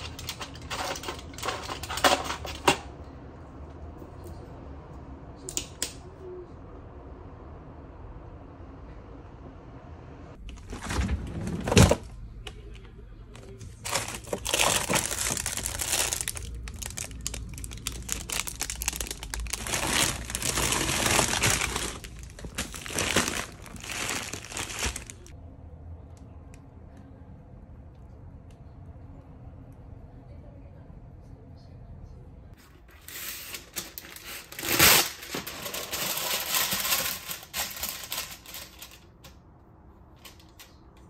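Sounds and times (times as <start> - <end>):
plastic bags crinkling: 0.0 - 2.6, 13.6 - 25.3, 33.0 - 39.2
freezer drawer pulled open: 10.6 - 12.1.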